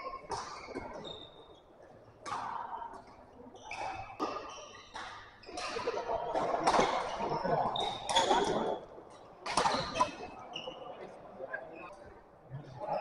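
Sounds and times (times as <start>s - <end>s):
shoe squeaks on court: 0.4s - 1.6s, 3.6s - 5.9s, 7.8s - 8.6s
racket hitting shuttlecock: 3.8s - 7.1s, 9.4s - 10.0s.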